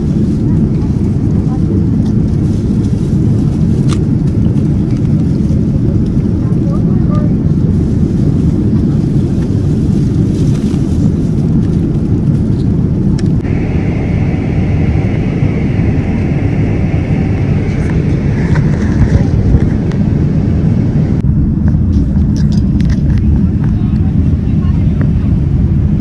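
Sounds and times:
vehicle rumbling: 0.0 - 26.0.

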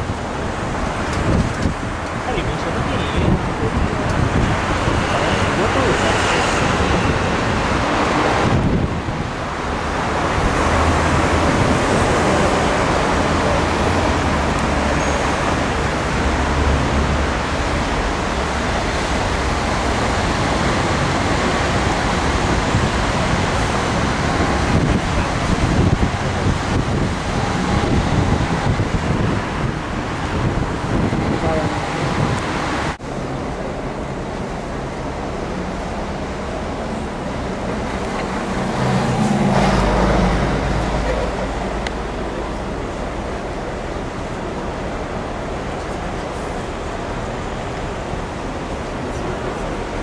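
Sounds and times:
wind buffeting microphone: 0.0 - 14.8, 18.0 - 33.0
city traffic noise: 0.0 - 50.0.

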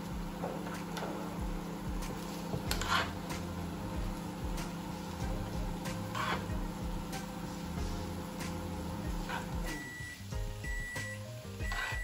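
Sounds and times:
steady mechanical hum: 0.0 - 12.0
metal spoon scraping: 2.7 - 3.2, 6.1 - 6.6.

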